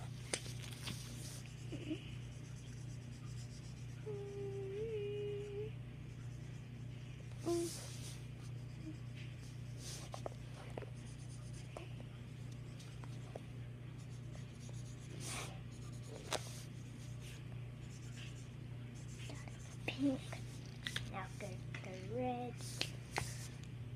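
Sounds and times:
steady low hum: 0.0 - 23.9
marker scratching on paper: 14.0 - 20.5.

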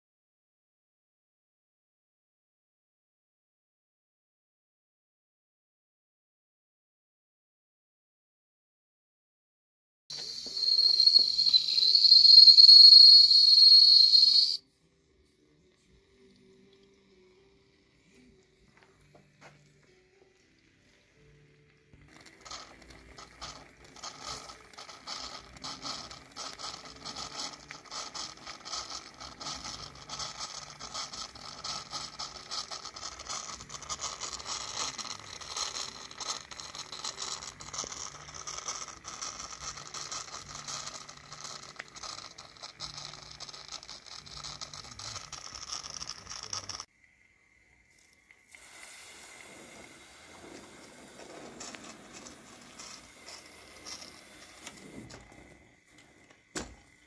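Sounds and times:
steam hissing: 10.1 - 14.6, 22.1 - 57.0
steam cylinders chuffing: 22.1 - 46.8, 48.6 - 57.0.

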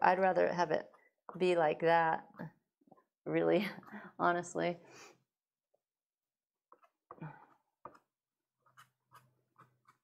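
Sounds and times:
pastel scratching on card: 7.9 - 10.0.

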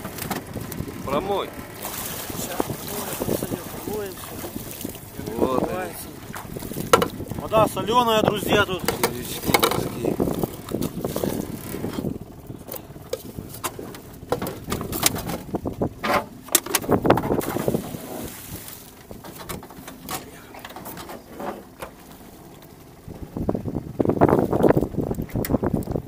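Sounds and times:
water splashing and sloshing: 0.0 - 26.0
anchor knocking against boat: 2.6 - 7.4, 8.3 - 12.1.

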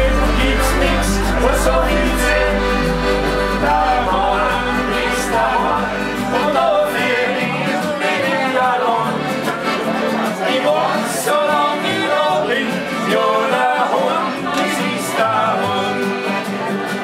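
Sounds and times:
deep steady bass tone: 0.0 - 7.0
men singing together: 0.0 - 16.9
accordion: 0.0 - 17.0
acoustic guitar: 0.0 - 17.0
upright double bass: 0.0 - 17.0.

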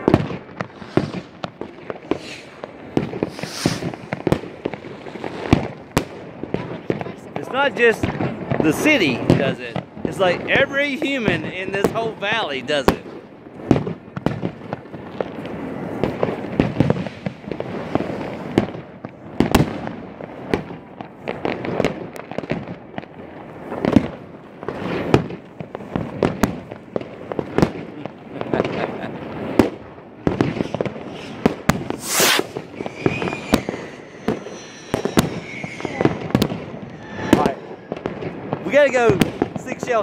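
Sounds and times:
fireworks bangs and pops: 0.0 - 40.0
sharp hiss: 0.7 - 1.4, 2.1 - 2.6, 3.2 - 4.2, 30.6 - 38.0.

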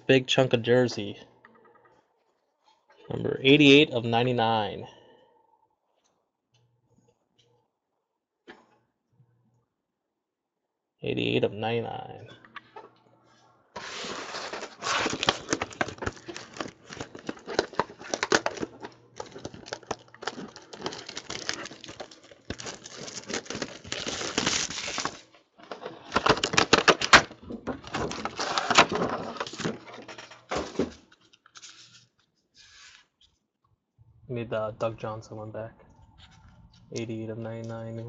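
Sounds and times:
plastic bag crinkling: 13.8 - 30.8.

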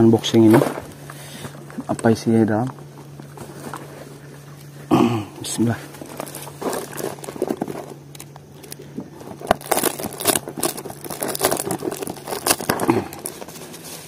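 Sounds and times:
plastic mailer crinkling: 5.4 - 14.0
scissors cutting plastic: 9.4 - 13.5.

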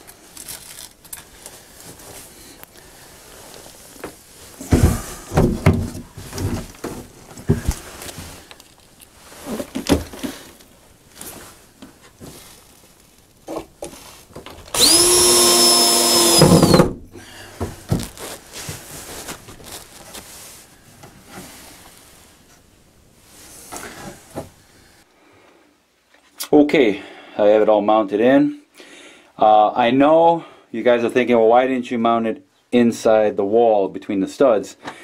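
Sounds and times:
cordless drill whining: 14.7 - 16.9.

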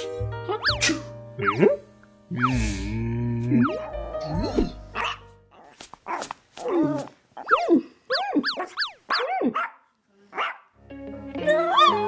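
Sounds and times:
dog barking: 5.0 - 5.2, 6.1 - 10.7.

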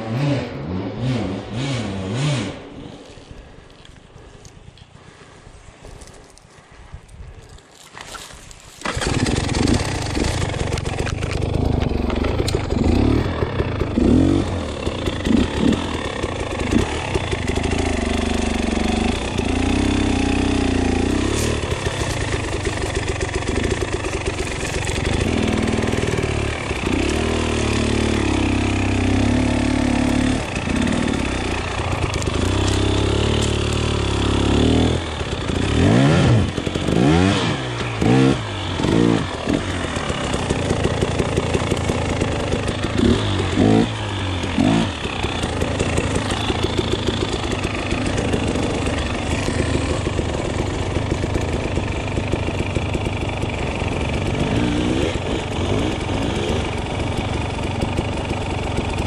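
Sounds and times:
two-stroke motorcycle engine revving: 0.0 - 2.8, 8.8 - 59.0.

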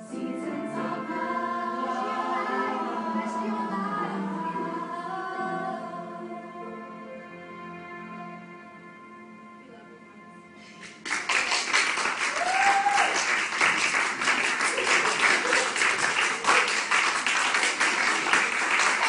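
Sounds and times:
crowd clapping and cheering: 10.8 - 19.0
person whooping: 12.3 - 13.3.

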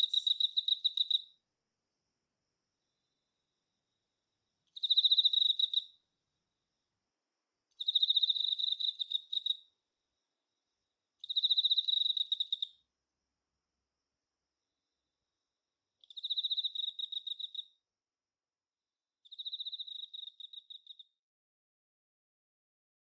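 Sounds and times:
cricket trilling: 0.0 - 1.4, 4.7 - 6.0, 7.7 - 9.8, 11.2 - 12.8, 16.0 - 17.8, 19.2 - 21.2.

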